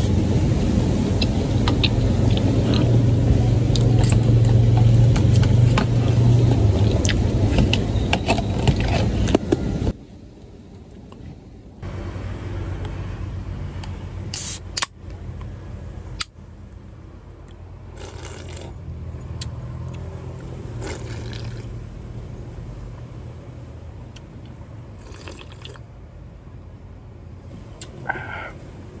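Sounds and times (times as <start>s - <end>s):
idling car hum: 0.0s - 29.0s
drink can opening with hiss: 14.3s - 14.9s
sipping and swallowing: 17.9s - 18.8s, 20.7s - 21.7s, 25.0s - 25.9s.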